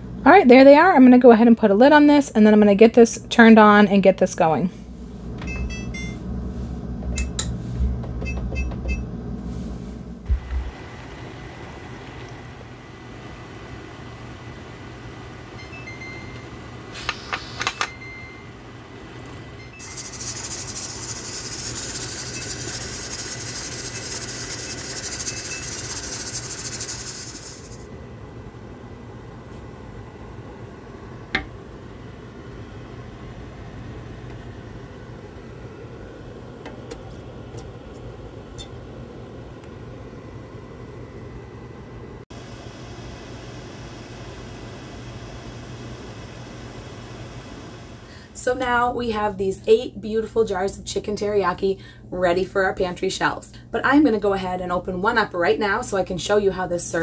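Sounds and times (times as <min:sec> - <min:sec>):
low hum: 0:04.1 - 0:13.7
steam hissing from vent: 0:16.9 - 0:17.7, 0:19.8 - 0:27.9.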